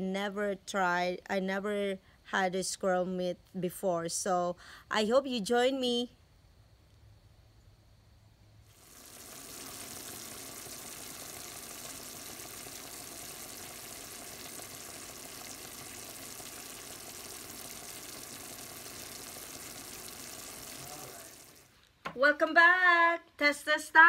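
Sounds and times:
meat sizzling in a frying pan: 0:08.8 - 0:21.7.

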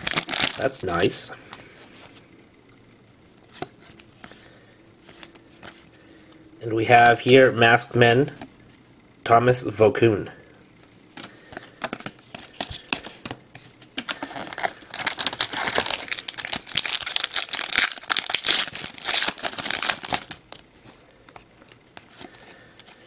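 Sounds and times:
wrapper crackling: 0:00.0 - 0:01.0, 0:14.1 - 0:20.6.

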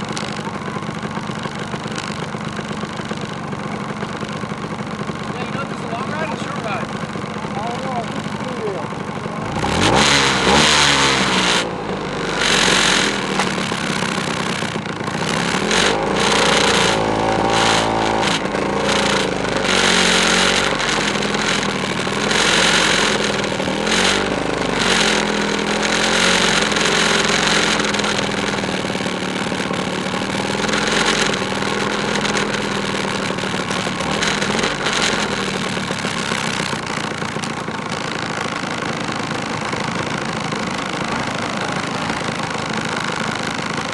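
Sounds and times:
scooter engines revving: 0:00.0 - 0:43.9.

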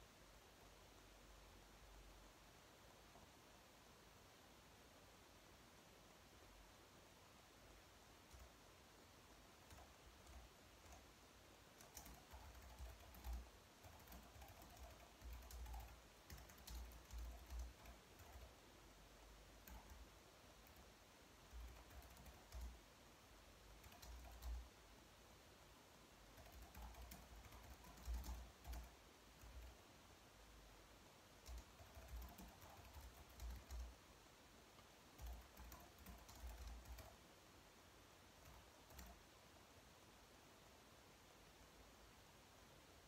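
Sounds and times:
soft keyboard typing: 0:08.2 - 0:08.7, 0:09.5 - 0:18.6, 0:19.4 - 0:22.9, 0:23.6 - 0:24.8, 0:26.3 - 0:29.9, 0:31.3 - 0:34.1, 0:34.8 - 0:37.4, 0:38.3 - 0:39.4.

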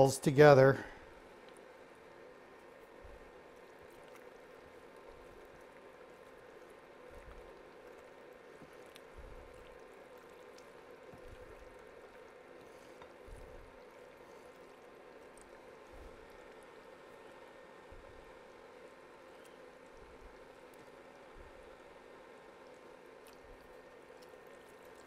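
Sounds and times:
faint hum: 0:00.0 - 0:25.0.

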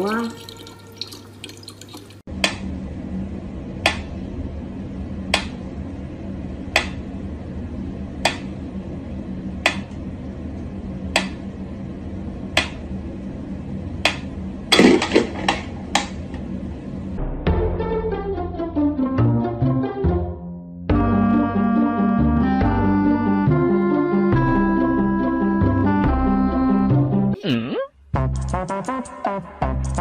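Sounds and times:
music: 0:17.2 - 0:27.4, 0:28.1 - 0:30.0.

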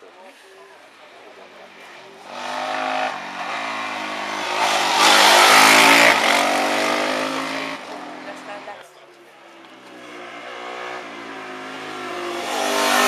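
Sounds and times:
motorcycle engine revving past: 0:02.2 - 0:08.5, 0:09.8 - 0:13.0.

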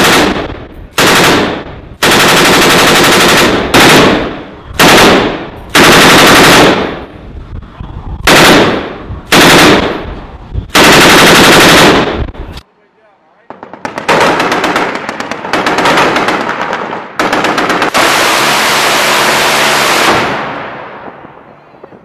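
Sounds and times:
machine gun firing bursts: 0:00.0 - 0:07.0, 0:08.3 - 0:10.1, 0:10.7 - 0:12.3, 0:13.5 - 0:20.4.

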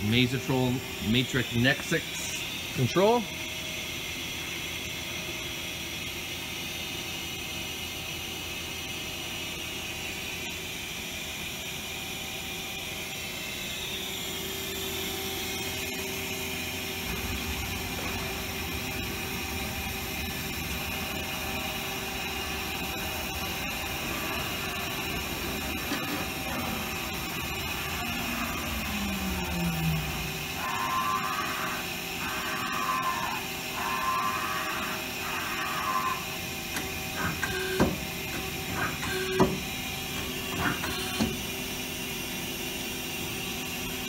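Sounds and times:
lathe whirring and humming: 0:00.0 - 0:44.0
deeper hum: 0:14.4 - 0:41.5
falling whine of turret: 0:14.6 - 0:36.4.

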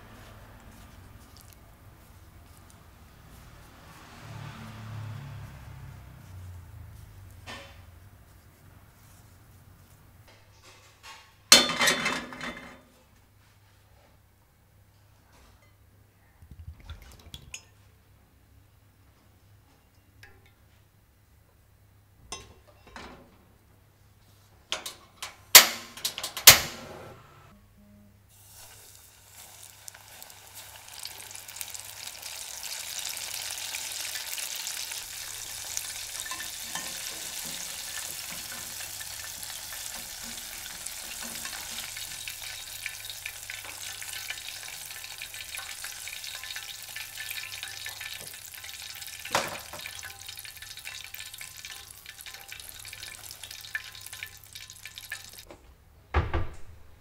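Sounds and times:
chicken deep-frying in oil: 0:00.0 - 0:12.7, 0:28.3 - 0:55.5.

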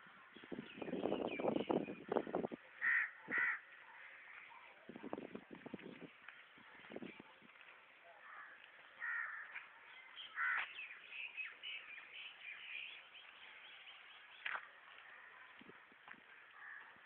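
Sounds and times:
birds calling: 0:08.2 - 0:15.2.

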